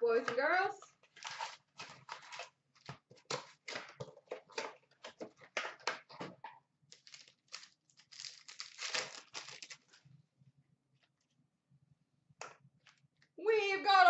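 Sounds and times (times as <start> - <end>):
foil wrappers tearing and crinkling: 1.2 - 2.4, 6.9 - 10.0.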